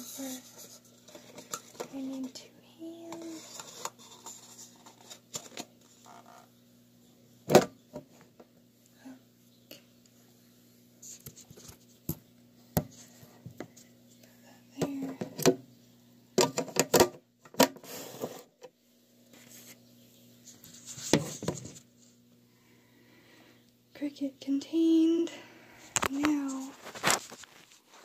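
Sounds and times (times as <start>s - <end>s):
phone rustling: 26.0s - 28.0s.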